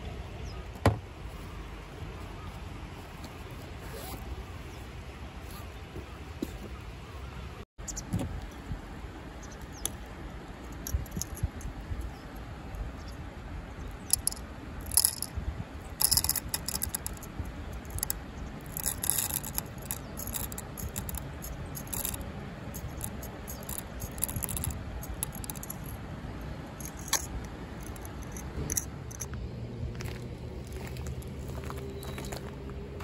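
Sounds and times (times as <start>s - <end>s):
coffee beans rattling into container: 14.1s - 15.3s, 16.0s - 25.9s.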